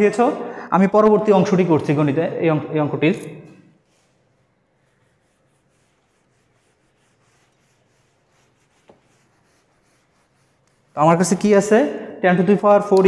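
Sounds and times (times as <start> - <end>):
duster rubbing on whiteboard: 3.8 - 11.7.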